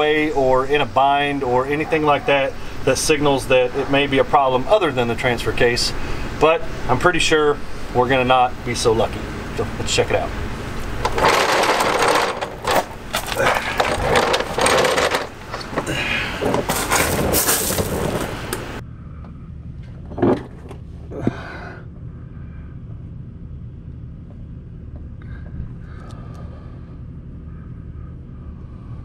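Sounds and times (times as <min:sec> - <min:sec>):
creeper rolling on concrete: 0:00.0 - 0:18.8
clattering knocks: 0:10.8 - 0:18.8.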